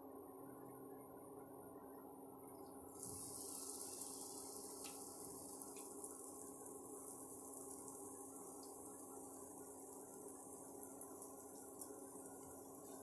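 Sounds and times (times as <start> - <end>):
cooktop hum: 2.5 - 13.0
batter sizzling in hot oil: 2.8 - 13.0.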